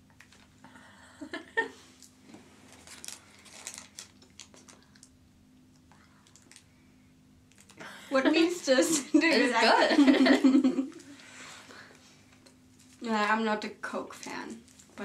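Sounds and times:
chewing candy: 5.8 - 6.7.

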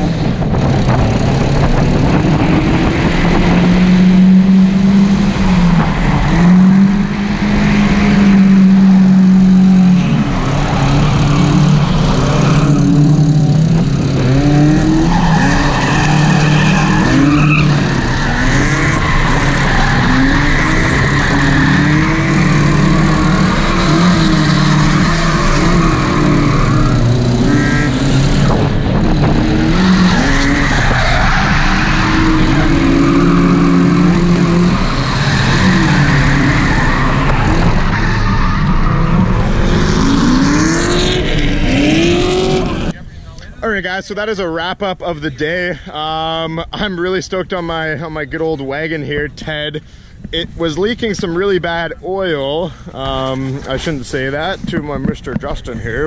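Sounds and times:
car engine revving: 0.0 - 43.0
tires squealing: 0.0 - 43.0.

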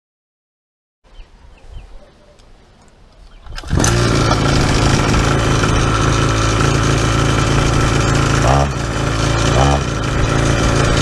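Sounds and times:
two-stroke engine running: 3.5 - 11.0.

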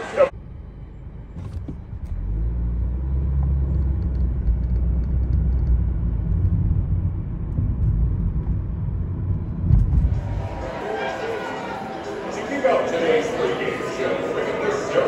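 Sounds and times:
car interior road rumble: 0.0 - 10.4.

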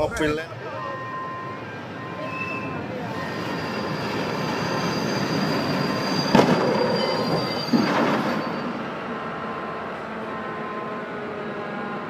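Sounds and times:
diesel locomotive rumble: 0.0 - 12.0
high squeal: 0.9 - 9.2
loud crash: 6.2 - 9.0.

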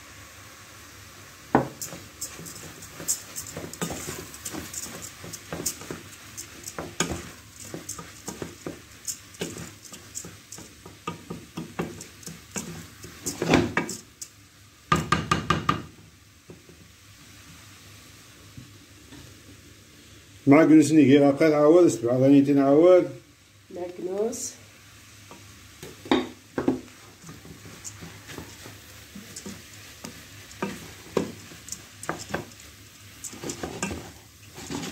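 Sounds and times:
wooden spoon stirring in metal pot: 1.5 - 15.8, 25.3 - 34.9.

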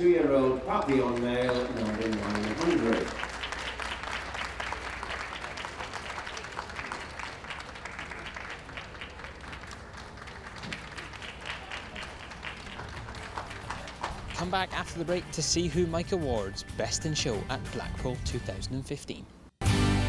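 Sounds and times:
audience applauding: 0.4 - 15.2.

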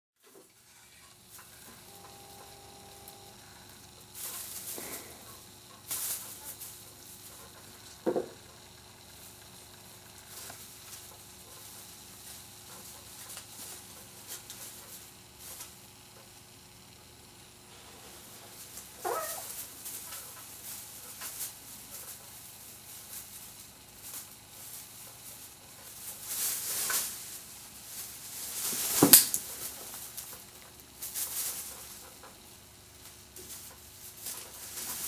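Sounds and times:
artificial tree branches rustling: 3.8 - 8.0, 17.7 - 35.0.

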